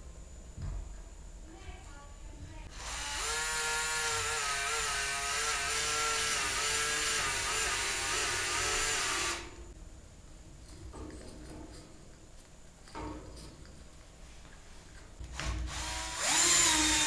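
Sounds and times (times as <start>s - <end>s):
power tool motor whine: 2.7s - 9.6s, 15.4s - 17.0s.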